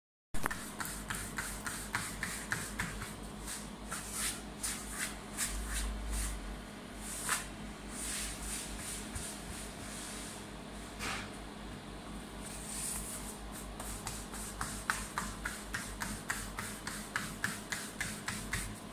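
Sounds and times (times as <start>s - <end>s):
hands patting pizza dough: 0.4s - 5.1s, 12.9s - 18.9s.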